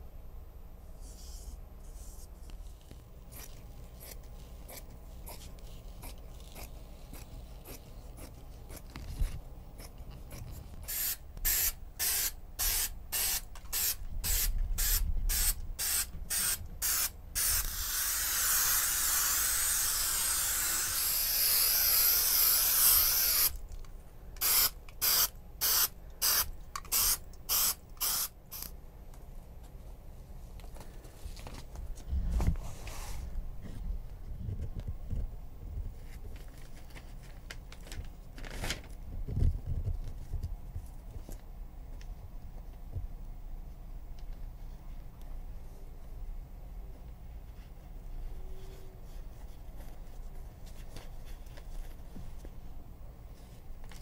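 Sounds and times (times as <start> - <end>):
aerosol can spray hissing: 10.9 - 23.5, 24.4 - 28.7
faint handling noise: 29.0 - 46.2, 46.8 - 54.0.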